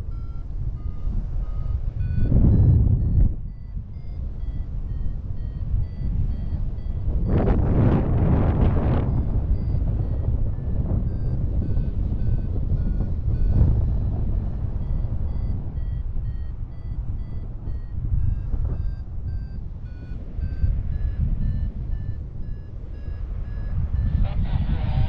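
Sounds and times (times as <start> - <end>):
short beeps in a tune: 0.0 - 8.0, 8.6 - 25.0
wind rumble on microphone: 0.0 - 25.0.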